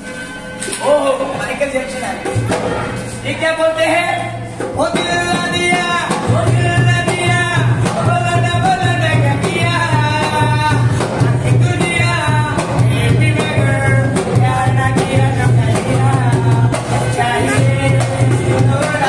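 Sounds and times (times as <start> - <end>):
person singing: 3.4 - 19.0
low drum beat: 4.6 - 19.0.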